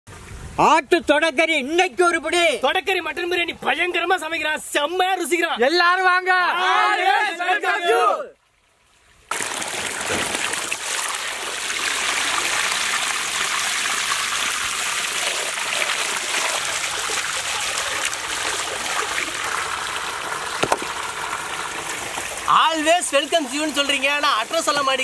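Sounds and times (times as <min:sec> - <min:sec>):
water gushing onto meat: 0:09.3 - 0:25.0.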